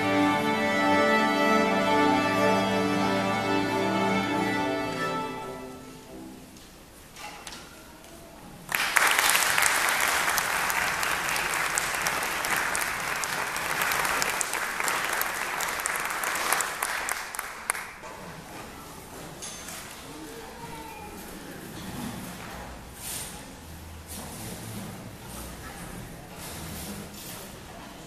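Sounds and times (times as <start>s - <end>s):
string orchestra holding chord: 0.0s - 6.5s
audience applause: 8.7s - 18.0s.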